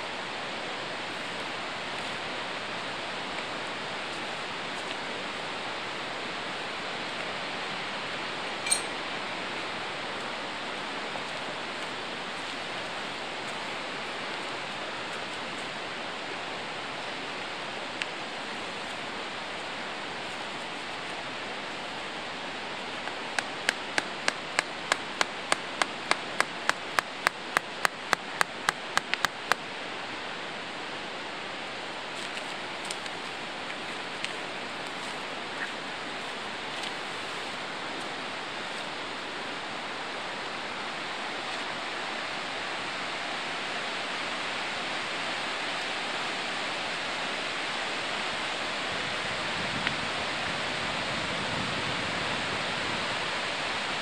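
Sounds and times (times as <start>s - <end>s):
river rushing: 0.0s - 54.0s
mallet striking tent stake: 23.4s - 29.6s.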